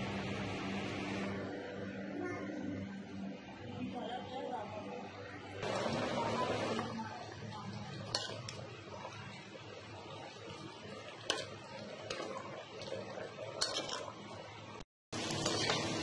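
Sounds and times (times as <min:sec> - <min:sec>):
spoon stirring meat in a pot: 0:07.8 - 0:09.6, 0:10.3 - 0:14.5.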